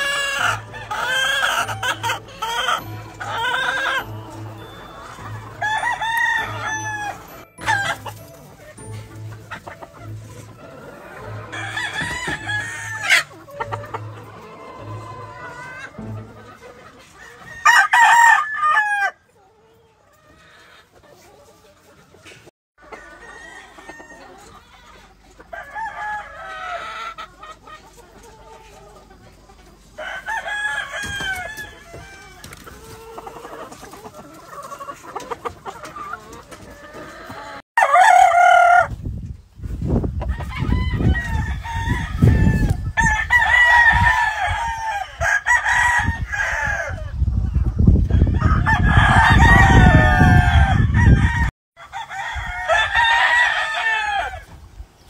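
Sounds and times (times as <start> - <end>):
roosters crowing: 0.0 - 8.2, 10.6 - 16.4, 17.1 - 19.3, 22.8 - 27.4, 30.0 - 39.1, 39.8 - 47.2, 48.0 - 54.6
chickens clucking: 0.0 - 55.0.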